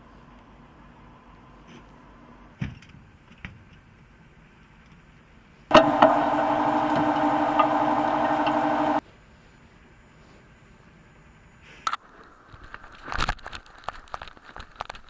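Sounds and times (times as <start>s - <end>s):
diesel engine running: 5.7s - 9.0s.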